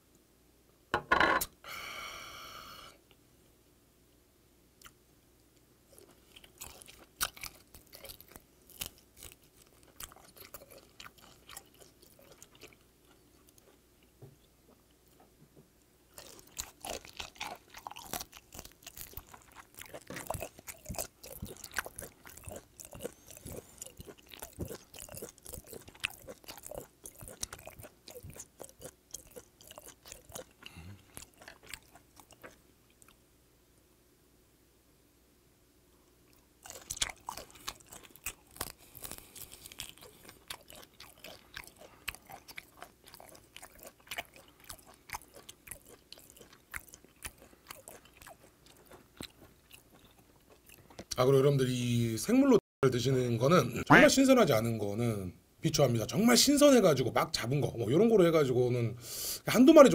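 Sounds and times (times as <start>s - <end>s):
crunchy chewing of shrimp: 5.9s - 15.2s, 16.1s - 33.2s, 36.2s - 51.4s.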